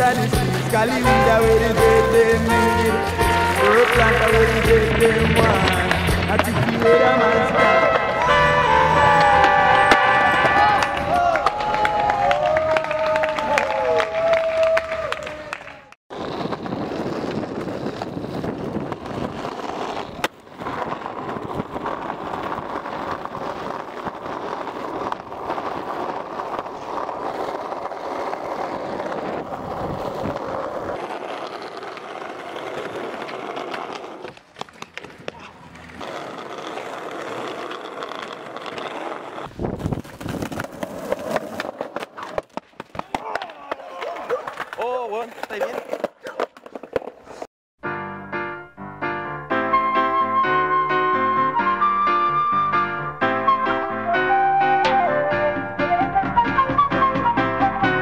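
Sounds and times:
skateboard clacks: 0:00.0 - 0:07.1, 0:14.6 - 0:47.5
skateboard wheels rolling on asphalt: 0:00.0 - 0:47.5, 0:49.7 - 0:58.0.

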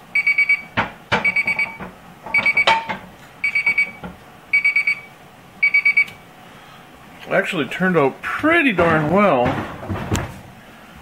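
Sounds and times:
kitchen timer alarm beeping: 0:00.1 - 0:06.2.

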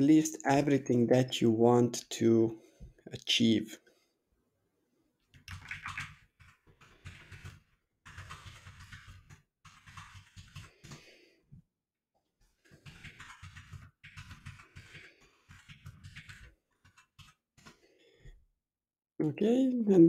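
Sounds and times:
typing on a computer keyboard: 0:05.4 - 0:11.1, 0:12.6 - 0:17.8.

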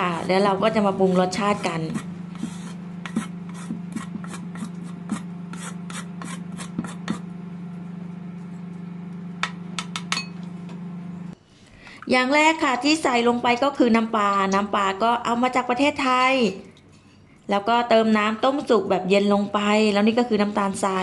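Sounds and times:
steady low hum: 0:00.0 - 0:21.0
scraping on wooden chopping board: 0:01.0 - 0:07.3.

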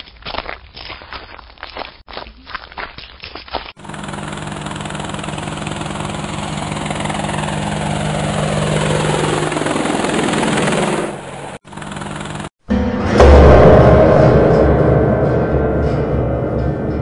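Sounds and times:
helicopter rotor chopping: 0:03.7 - 0:12.6.

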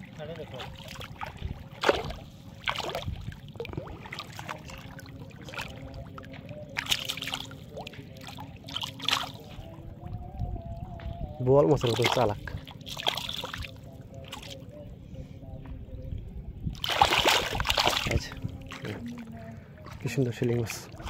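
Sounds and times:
fish splashing in water: 0:00.5 - 0:10.8, 0:11.8 - 0:14.6, 0:16.8 - 0:20.1.

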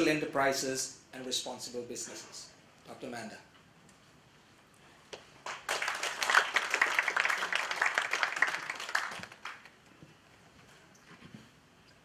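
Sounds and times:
audience applauding: 0:05.4 - 0:09.8.

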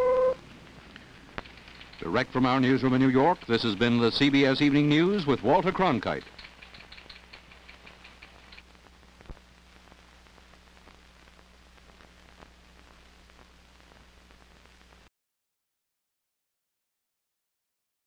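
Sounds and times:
low mains hum: 0:00.0 - 0:15.1
recording hiss: 0:00.0 - 0:15.1
rapid faint ticking: 0:00.5 - 0:08.7.

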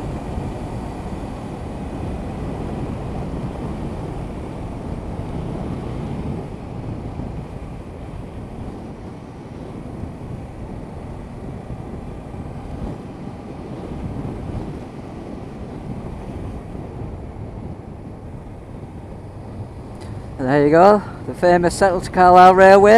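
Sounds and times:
wind rush on microphone: 0:00.0 - 0:22.9.

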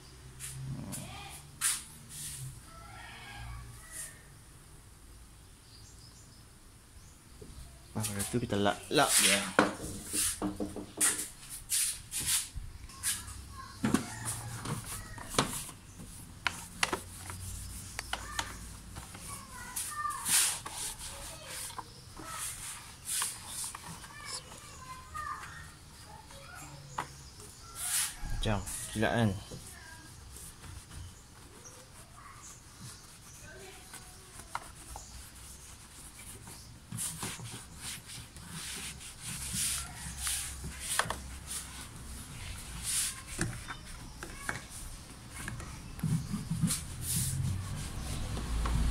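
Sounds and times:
cloth rubbing on plastic: 0:08.0 - 0:26.6, 0:29.7 - 0:43.9, 0:46.0 - 0:48.9.

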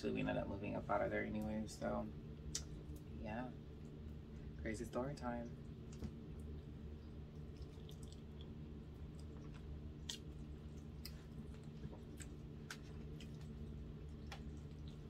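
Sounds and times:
low steady hum: 0:00.0 - 0:15.0
wet mouth clicks and smacks: 0:02.5 - 0:03.0, 0:07.0 - 0:13.5
person chewing food: 0:05.8 - 0:15.0.

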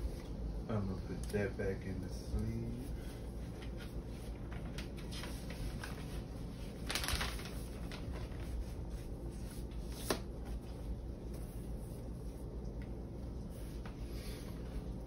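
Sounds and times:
paper sleeve rustling: 0:03.5 - 0:12.1.

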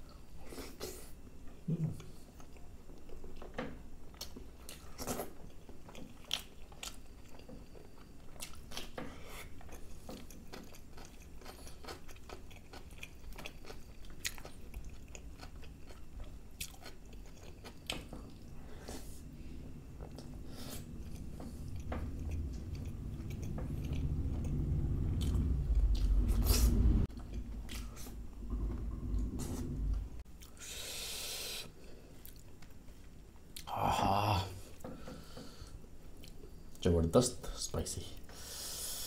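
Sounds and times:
man chewing food: 0:00.1 - 0:33.9, 0:34.6 - 0:36.8.

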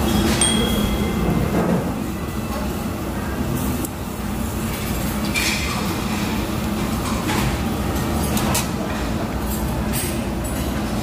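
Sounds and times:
restaurant background rumble: 0:00.0 - 0:11.0.

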